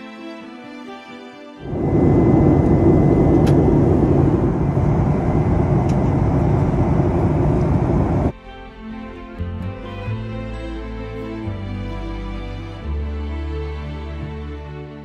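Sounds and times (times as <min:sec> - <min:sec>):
jet airliner cabin noise: 0:01.6 - 0:08.3.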